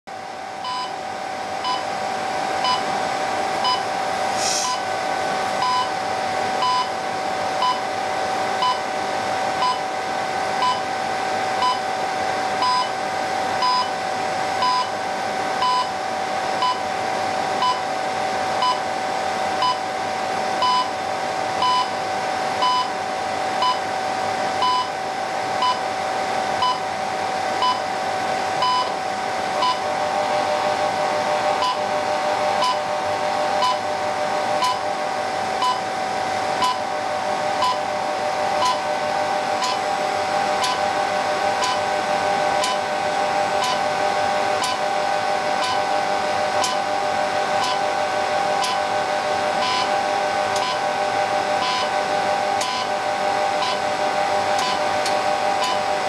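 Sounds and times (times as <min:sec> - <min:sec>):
steady hum: 0:00.1 - 0:56.0
time signal beeps: 0:00.6 - 0:01.0, 0:01.6 - 0:01.9, 0:02.6 - 0:02.9, 0:03.6 - 0:03.9, 0:05.6 - 0:06.0, 0:06.6 - 0:07.0, 0:07.6 - 0:07.8, 0:12.6 - 0:12.9, 0:13.6 - 0:13.9, 0:14.6 - 0:15.0, 0:28.6 - 0:29.0, 0:29.6 - 0:29.8, 0:31.6 - 0:31.8, 0:32.6 - 0:32.9, 0:33.6 - 0:33.8, 0:34.6 - 0:34.8, 0:35.6 - 0:35.8, 0:37.6 - 0:37.8, 0:38.6 - 0:38.8, 0:39.6 - 0:39.8, 0:49.6 - 0:50.0, 0:50.6 - 0:50.8, 0:51.6 - 0:51.9, 0:52.6 - 0:52.9, 0:53.6 - 0:53.8, 0:55.6 - 0:55.8.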